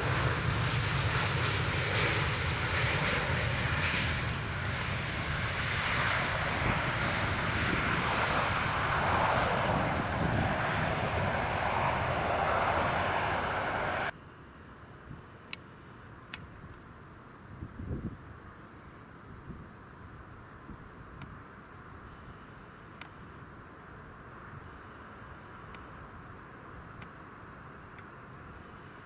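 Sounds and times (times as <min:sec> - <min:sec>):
jet engines roaring: 0:00.0 - 0:14.1.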